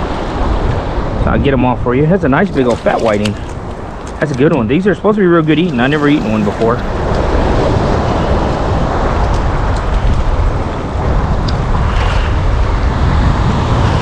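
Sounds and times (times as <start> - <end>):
small surf waves: 0.0 - 14.0
wind buffeting microphone: 0.0 - 14.0.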